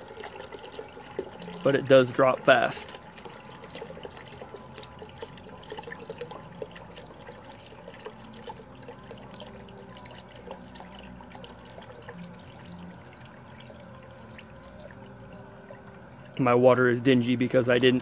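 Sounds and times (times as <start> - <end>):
water pouring and splashing: 0.0 - 16.6.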